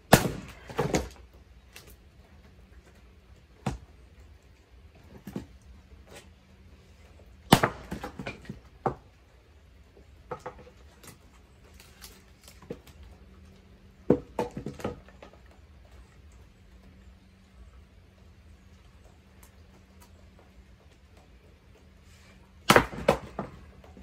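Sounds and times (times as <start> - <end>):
axe striking firewood: 0.0 - 1.2, 3.6 - 3.9, 7.5 - 9.0, 14.0 - 15.0, 22.6 - 24.0.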